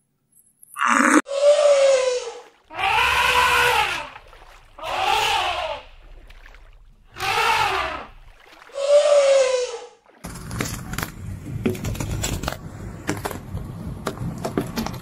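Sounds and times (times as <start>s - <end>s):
elephants trumpeting: 0.8s - 4.2s, 4.8s - 5.9s, 7.1s - 9.9s.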